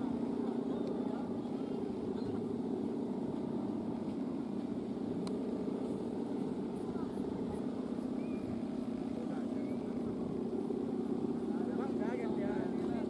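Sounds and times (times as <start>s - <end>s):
kite hummers droning: 0.0s - 13.0s.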